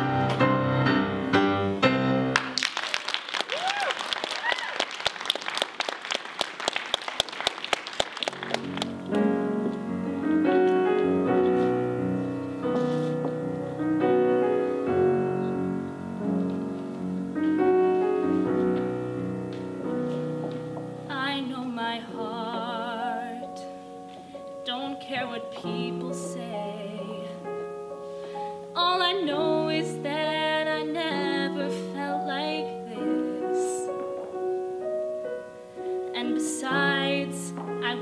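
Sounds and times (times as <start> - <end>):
piano playing chords: 0.0 - 2.6, 8.0 - 38.0
audience applause: 2.4 - 9.0
solo singing voice with vibrato: 21.1 - 23.8, 24.7 - 27.4, 28.8 - 33.9, 36.1 - 38.0.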